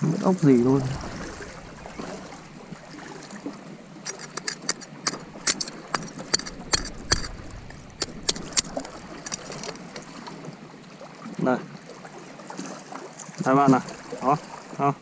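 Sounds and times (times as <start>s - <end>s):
knife scraping on shells: 4.0s - 9.9s.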